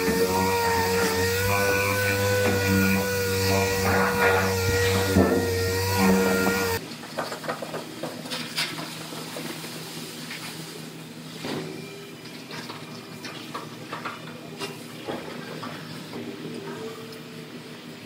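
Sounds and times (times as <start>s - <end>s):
abrasive pad scrubbing metal: 0.0s - 6.8s
low shop hum: 0.0s - 18.0s.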